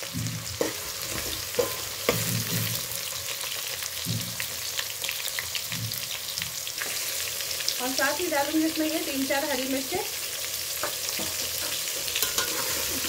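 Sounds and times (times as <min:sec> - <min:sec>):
onions sizzling in hot oil: 0:00.0 - 0:13.0
metal spatula scraping a pot: 0:00.4 - 0:02.9, 0:11.1 - 0:13.0.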